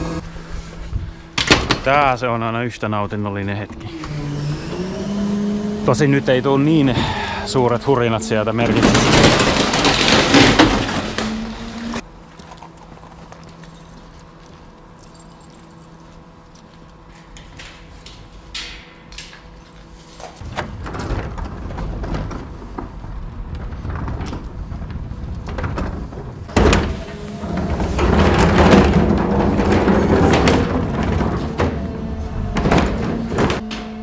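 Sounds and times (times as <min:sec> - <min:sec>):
low electric hum: 0:00.0 - 0:34.0
loud clattering: 0:08.6 - 0:11.9, 0:20.4 - 0:34.0.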